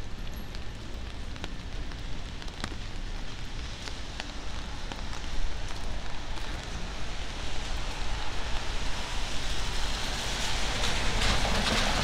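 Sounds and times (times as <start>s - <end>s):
raindrop ticks: 0.1s - 6.8s.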